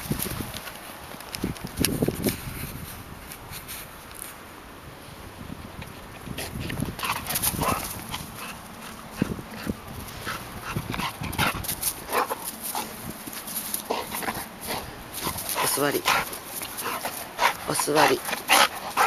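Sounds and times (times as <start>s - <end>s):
dog breathing and whining: 7.0s - 19.0s.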